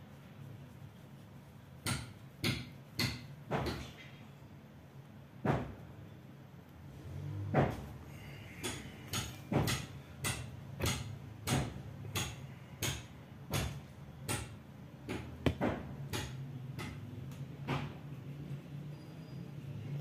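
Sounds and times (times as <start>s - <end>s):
cotton rubbing in quick strokes: 0.0s - 2.4s.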